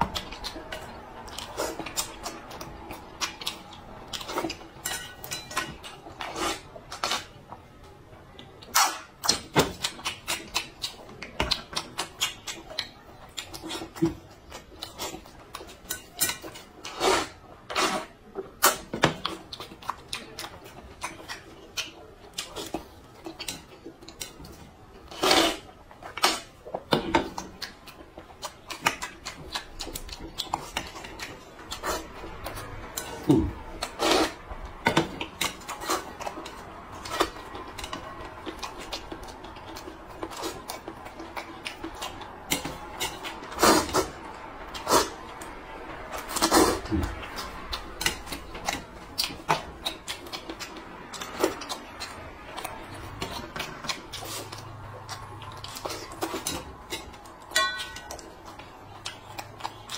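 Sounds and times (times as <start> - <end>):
slurping: 25.1 - 26.6, 29.9 - 34.4, 41.4 - 45.5, 46.1 - 57.1
metal chopsticks tapping bowl: 57.5 - 58.2.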